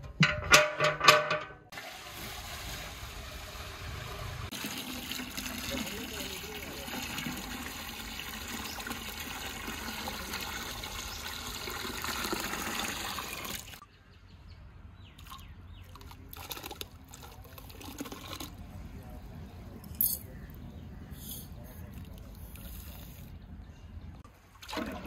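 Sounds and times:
water pouring into metal pot: 0:01.7 - 0:13.8
ladle stirring water: 0:15.2 - 0:18.6, 0:24.6 - 0:25.0
light water splashes: 0:24.3 - 0:25.0.

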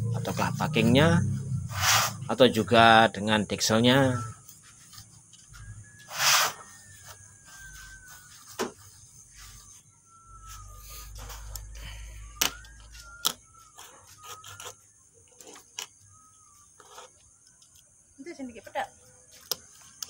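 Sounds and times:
metal gasket scraping: 0:00.0 - 0:02.5, 0:12.4 - 0:16.0.

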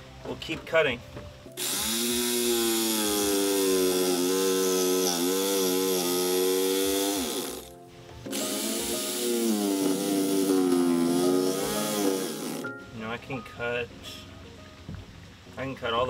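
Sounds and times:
electric jigsaw cutting: 0:01.6 - 0:07.7, 0:08.3 - 0:12.7.

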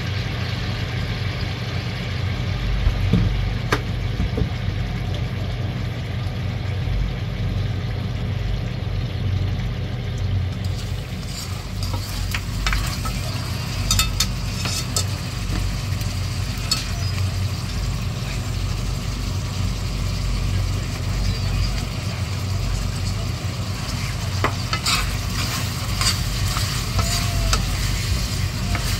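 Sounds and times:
low steady hum: 0:00.0 - 0:28.9
meat bubbling and sizzling in wok: 0:00.0 - 0:28.9
spatula scraping and clinking pan: 0:10.6 - 0:15.7, 0:16.6 - 0:17.1, 0:24.4 - 0:28.9.

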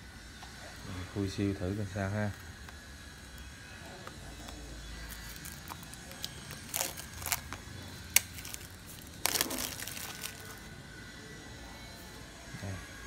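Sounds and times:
plastic wrap tearing and crinkling: 0:05.0 - 0:10.7.

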